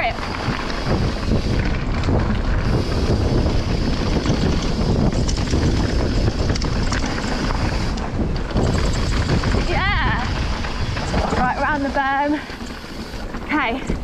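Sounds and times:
wind buffeting microphone: 0.0 - 14.0
tyres clicking on stones: 3.4 - 14.0.

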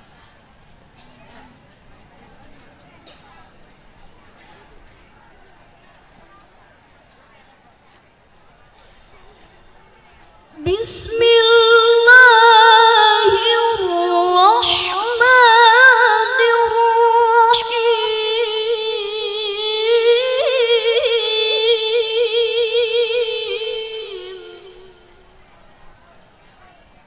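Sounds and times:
woman chanting melodically: 10.4 - 25.7.

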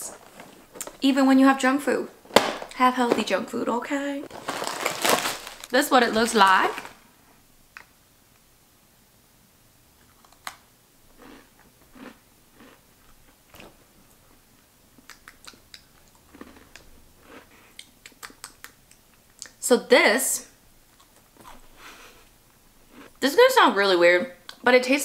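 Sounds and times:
crunching and chewing cookie: 4.3 - 7.0, 10.0 - 19.6, 20.9 - 23.2.

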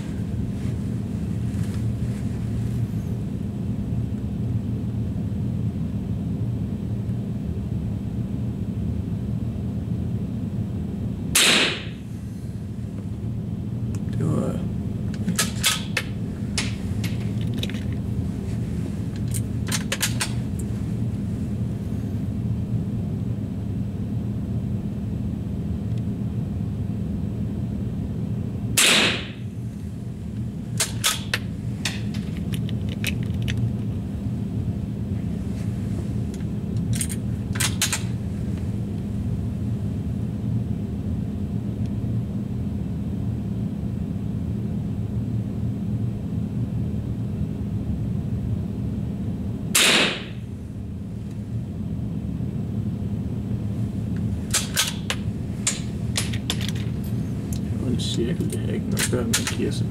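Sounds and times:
steady low hum: 0.0 - 59.9
rifle shots: 11.4 - 12.0, 28.8 - 29.4, 49.8 - 50.4.

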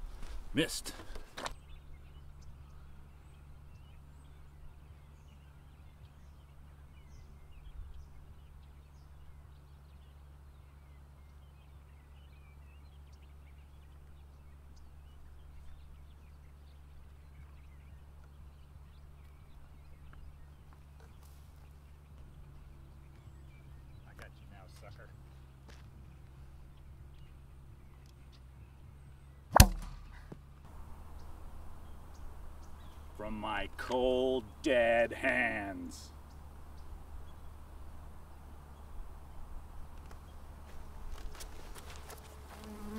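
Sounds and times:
bird chirps: 26.6 - 39.5.

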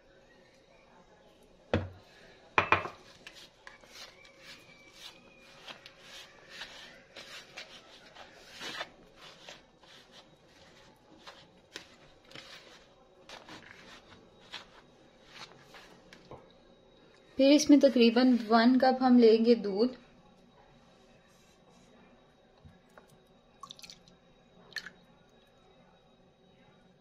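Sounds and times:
scraping and rubbing dough: 2.0 - 16.3, 20.8 - 22.1
knocks on a bowl: 2.6 - 3.0.

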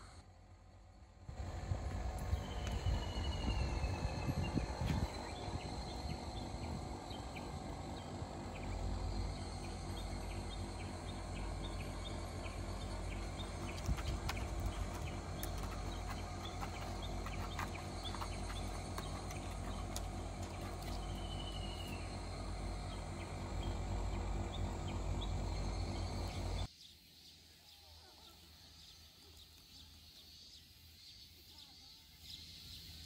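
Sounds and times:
insects chirping: 0.0 - 33.0
low rumble: 1.3 - 26.7.

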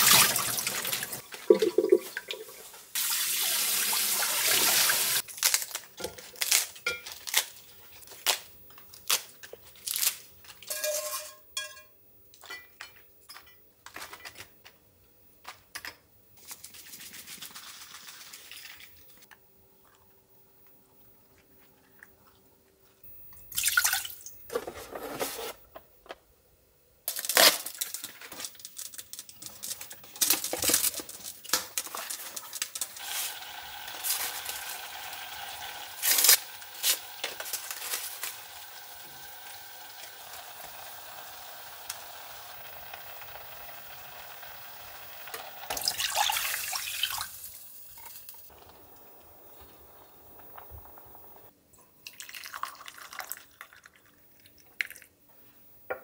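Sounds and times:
sachets torn and crinkled: 5.2 - 10.3, 27.1 - 33.0
milk pouring into pot: 33.0 - 47.4, 52.0 - 55.1
water simmering with hiss: 33.0 - 51.5.

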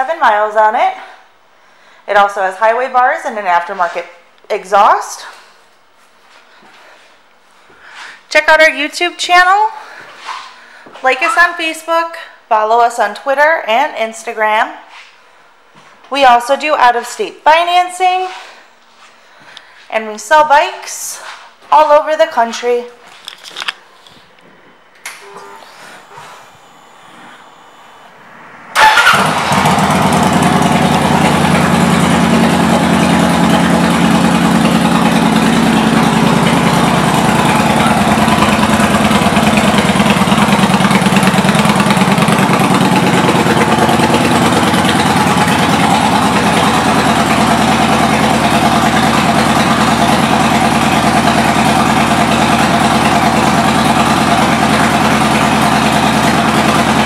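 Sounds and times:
motorcycle engine starting and idling: 24.9 - 57.0.

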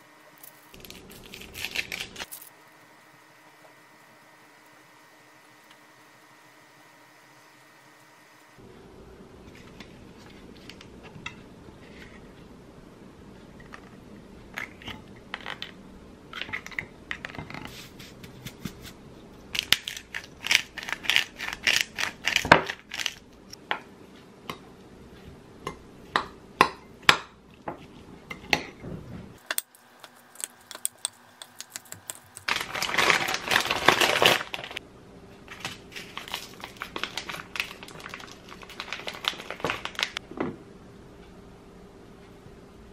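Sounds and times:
plastic packet crinkling: 0.7 - 2.5, 29.8 - 34.8, 35.5 - 40.2.

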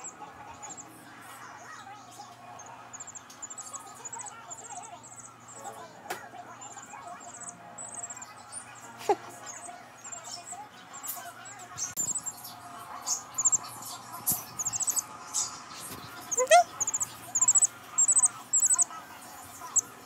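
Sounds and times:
chick cheeping: 6.7 - 12.5, 13.1 - 13.7, 14.3 - 15.1, 16.2 - 18.9.

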